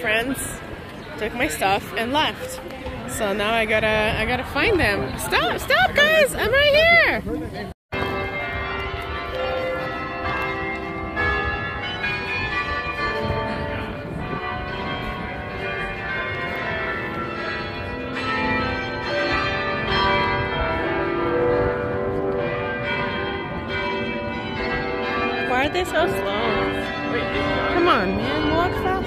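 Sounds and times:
carillon bells ringing: 8.0 - 29.0.

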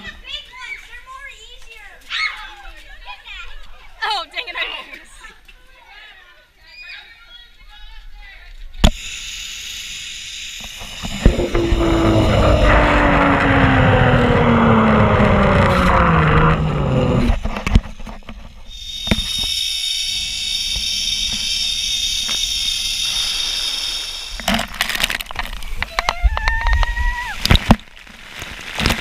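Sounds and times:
trolley wheels whining on cable: 10.8 - 27.3
wind on microphone: 10.9 - 18.3.

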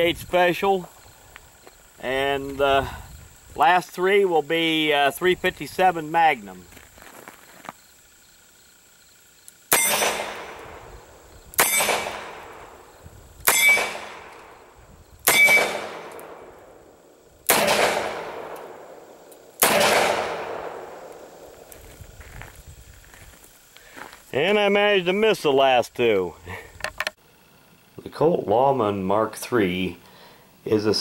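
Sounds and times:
metallic ring of steel target: 9.7 - 10.8, 11.6 - 12.6, 13.5 - 14.3, 15.3 - 16.5
revolver gunshots: 9.7 - 11.0, 11.6 - 12.8, 13.4 - 14.6, 15.2 - 16.8, 17.5 - 21.5.

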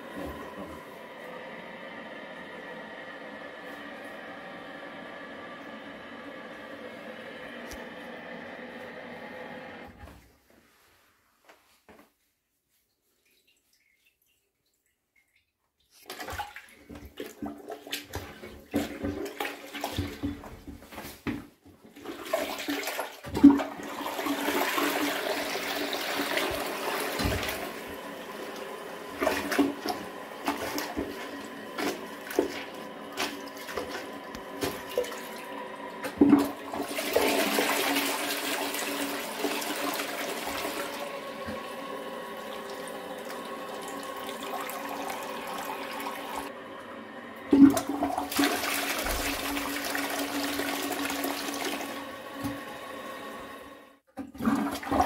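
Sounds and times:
toilet flushing: 0.0 - 10.3, 16.0 - 55.0
mop knocking and splashing: 16.0 - 23.9, 26.2 - 41.7, 47.5 - 51.8.

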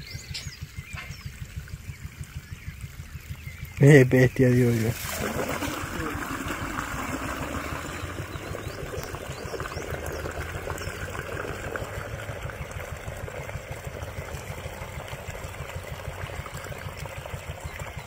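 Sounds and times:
low steady rumble: 0.0 - 18.0
water running from a hose: 0.6 - 18.0.

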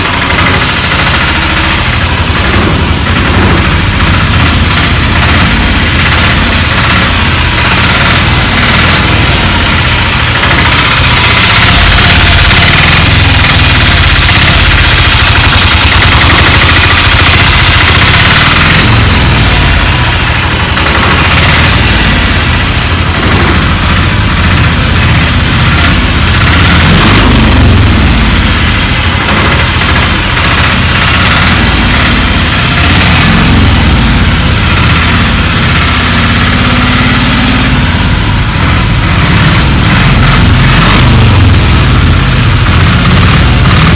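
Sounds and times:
rickshaw engine idling: 0.0 - 43.9.

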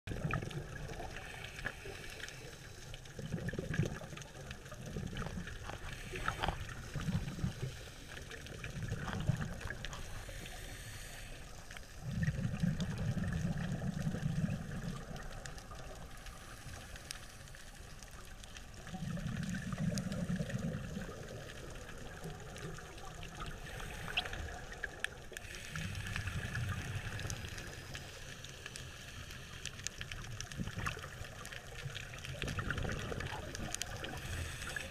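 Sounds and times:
diver exhaling bubbles underwater: 0.1 - 1.9, 3.2 - 11.1, 12.0 - 15.6, 18.9 - 25.1, 32.0 - 34.9
faint clicks: 0.2 - 34.9
steady hiss: 0.7 - 3.2, 4.5 - 32.4, 33.1 - 34.9.

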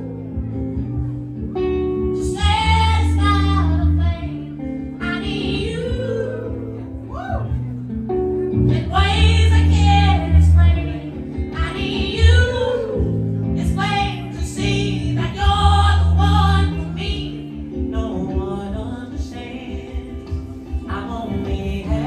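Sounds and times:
bass: 0.0 - 22.0
drums: 0.0 - 22.0
electric guitar: 0.0 - 22.0
man singing in a high voice: 13.6 - 22.0.

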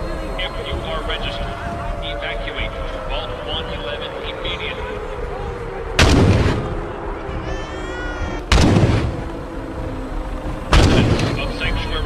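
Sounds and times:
wavering high-pitched tone: 0.0 - 6.0
heavy gunfire blasts: 6.0 - 6.9, 8.5 - 9.3, 10.7 - 11.5.

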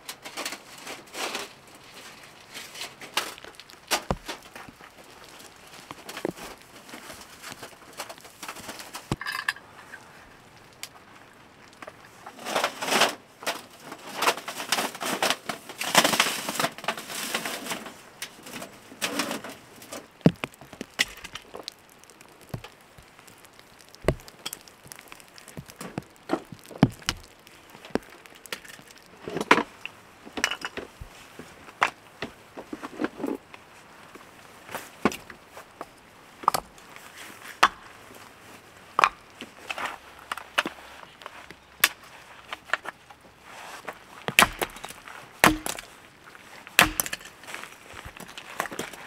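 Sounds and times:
rustling and scraping: 0.0 - 10.2, 11.7 - 36.0, 39.3 - 49.0
firewood blocks knocking together: 7.6 - 9.6, 20.2 - 29.7, 44.3 - 45.9, 46.8 - 47.3.

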